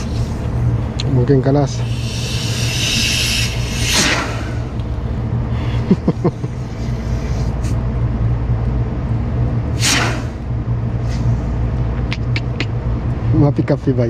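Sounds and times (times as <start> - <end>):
machinery humming: 0.0 - 14.0
brief hiss: 2.2 - 4.6, 9.8 - 10.4.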